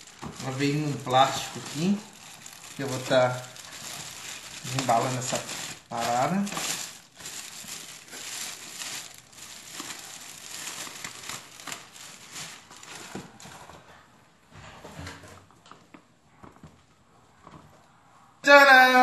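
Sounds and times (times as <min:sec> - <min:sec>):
plastic bag crinkling: 0:00.0 - 0:13.8.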